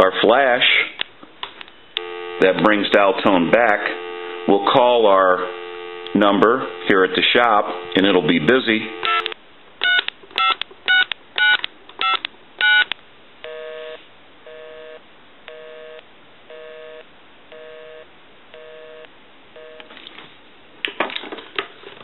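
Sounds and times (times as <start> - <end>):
busy signal beeps: 1.8 - 2.7, 3.8 - 4.8, 5.4 - 9.4
touch-tone keypad dialing: 9.0 - 12.9.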